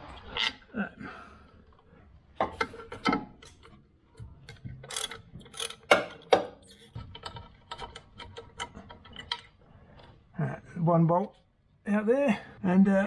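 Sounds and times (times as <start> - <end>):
socket ratchet clicking: 4.5 - 9.5.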